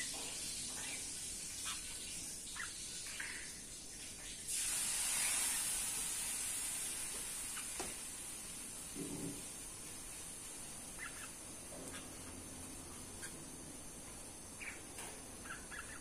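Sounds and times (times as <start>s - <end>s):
high-pitched hiss: 0.0s - 16.0s
faint bird chirps: 0.8s - 3.6s, 10.7s - 16.0s.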